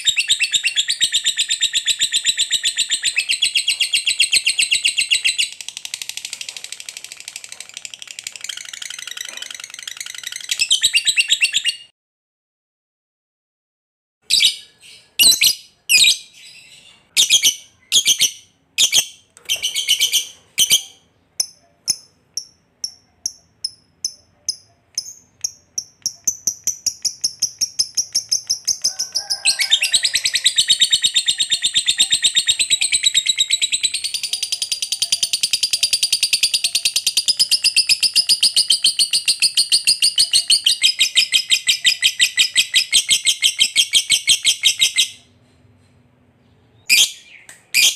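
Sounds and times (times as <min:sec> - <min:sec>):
shrill bird calls: 0:00.0 - 0:05.6, 0:08.3 - 0:11.9, 0:14.3 - 0:21.1, 0:24.1 - 0:45.3, 0:46.8 - 0:47.9
lovebird chattering trill: 0:07.1 - 0:11.8, 0:17.2 - 0:45.2.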